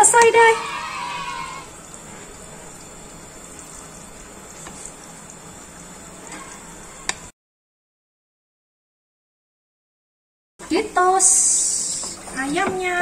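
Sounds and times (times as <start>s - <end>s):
sauce bubbling in a frying pan: 0.1s - 7.3s
wooden spoon stirring: 3.4s - 6.6s.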